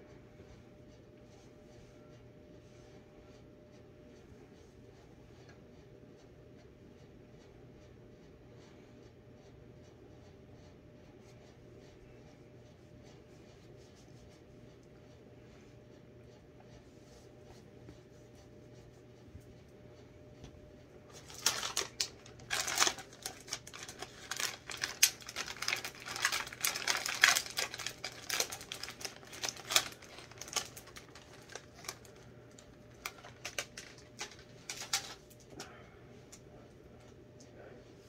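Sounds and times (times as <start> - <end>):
plastic packet crinkling: 21.1 - 35.4.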